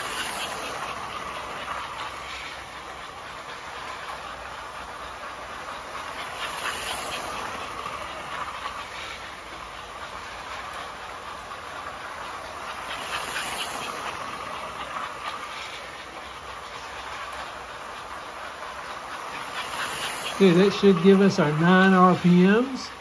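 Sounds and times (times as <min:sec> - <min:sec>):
toy train clattering on rails: 0:00.0 - 0:23.0.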